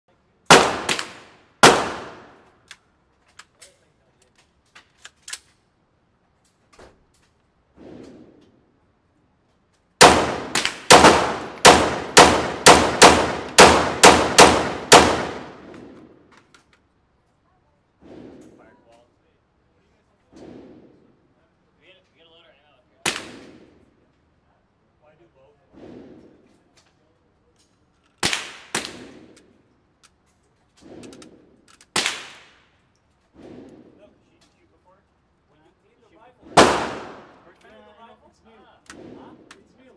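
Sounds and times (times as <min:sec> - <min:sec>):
rifle shots echoing indoors: 0:00.5 - 0:02.4, 0:10.0 - 0:16.0, 0:36.6 - 0:37.4
dull booms: 0:25.7 - 0:26.6.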